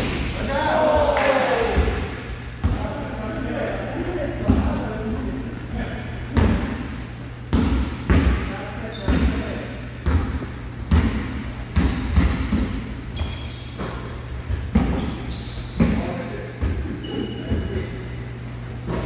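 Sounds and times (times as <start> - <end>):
sneakers squeaking on court: 8.8 - 9.3, 11.7 - 17.9
basketballs bouncing on hardwood: 10.0 - 16.9.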